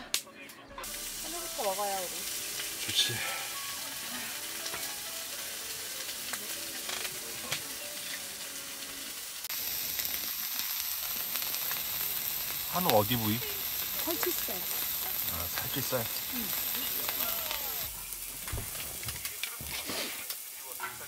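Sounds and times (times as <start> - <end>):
food sizzling on a griddle: 0.8 - 21.0
utensils clicking on a pan: 4.4 - 9.1.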